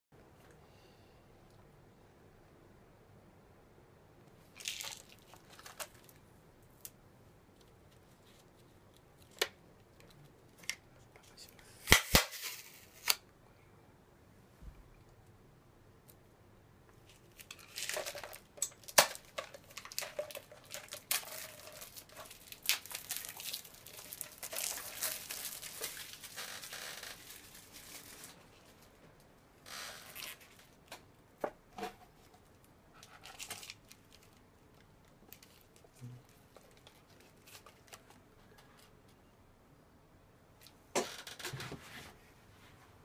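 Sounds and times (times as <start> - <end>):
plastic wrapper tearing and crinkling: 4.6 - 6.2, 11.8 - 13.2, 17.1 - 28.5, 29.7 - 31.0, 35.3 - 38.1.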